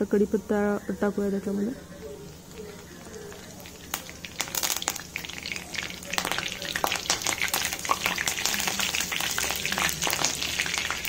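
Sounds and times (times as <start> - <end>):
spices sizzling in hot oil: 1.1 - 11.0
crackling pops: 2.3 - 11.0.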